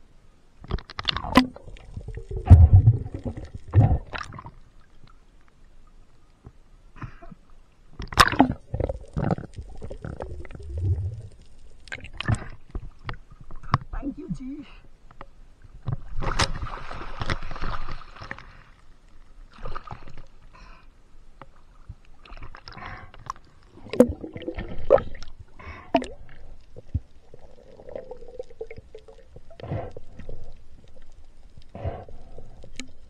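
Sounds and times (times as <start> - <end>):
underwater bubbling: 0.9 - 6.2, 7.1 - 14.0, 21.5 - 33.0.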